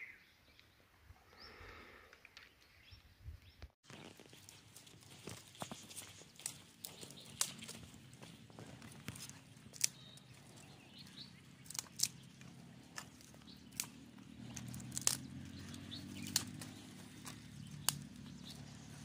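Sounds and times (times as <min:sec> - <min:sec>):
dry sticks snapping: 0:03.9 - 0:18.7.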